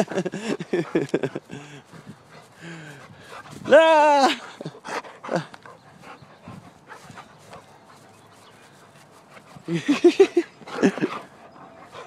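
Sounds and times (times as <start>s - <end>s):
dog panting: 0.0s - 3.7s, 4.4s - 12.0s.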